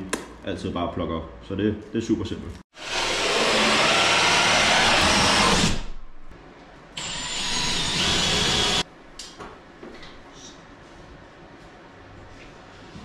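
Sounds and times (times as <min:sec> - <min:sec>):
drill hole saw cutting panel: 0:02.8 - 0:05.9, 0:07.0 - 0:08.8.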